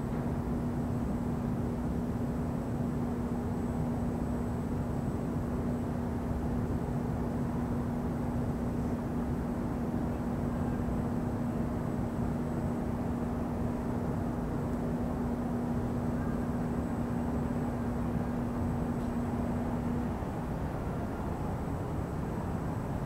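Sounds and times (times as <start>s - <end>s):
steady low hum: 0.0s - 23.0s
distant city traffic rumble: 8.8s - 23.0s.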